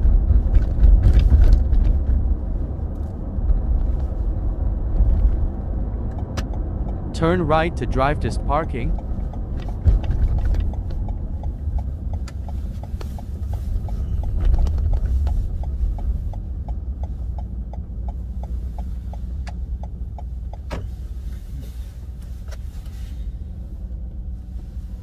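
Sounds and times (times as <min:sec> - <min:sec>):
engine and road rumble: 0:00.0 - 0:25.0
turn signal clicking: 0:04.9 - 0:23.0.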